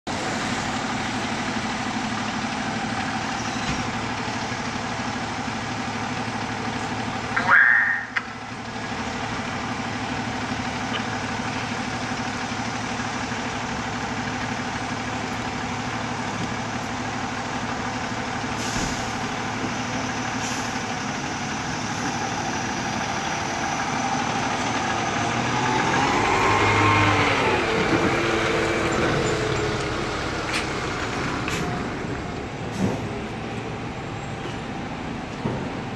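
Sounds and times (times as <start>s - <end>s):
diesel engine idling: 0.1s - 35.9s
engine revving: 20.4s - 33.0s.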